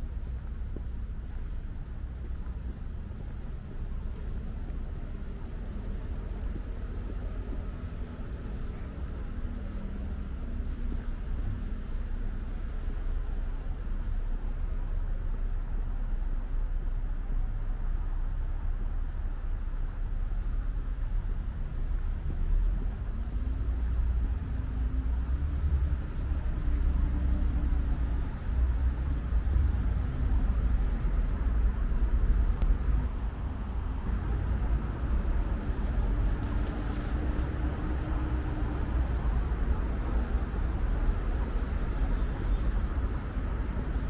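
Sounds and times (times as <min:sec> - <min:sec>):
traffic rumble: 0:00.0 - 0:44.0
passing vehicles humming: 0:20.4 - 0:44.0.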